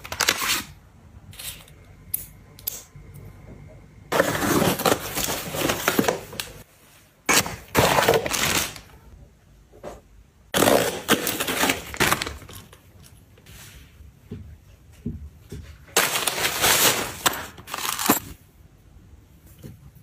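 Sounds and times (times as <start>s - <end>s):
objects rustling and clattering: 4.1s - 8.9s, 11.1s - 18.4s.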